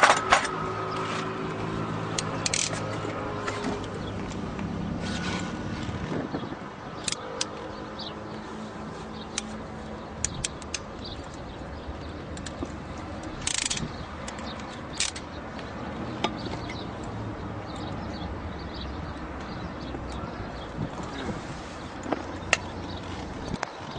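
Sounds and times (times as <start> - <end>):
crimp tool ratcheting clicks: 2.1 - 2.9, 10.2 - 11.4, 12.3 - 15.3.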